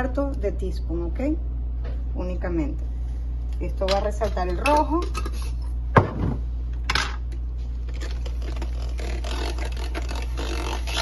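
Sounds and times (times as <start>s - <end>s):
electric frother whirring: 7.8s - 11.0s.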